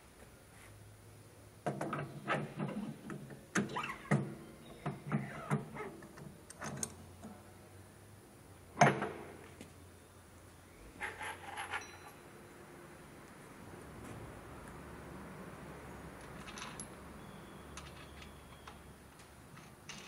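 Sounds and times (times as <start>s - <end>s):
metal clinking and scraping: 11.0s - 12.2s, 16.2s - 17.0s.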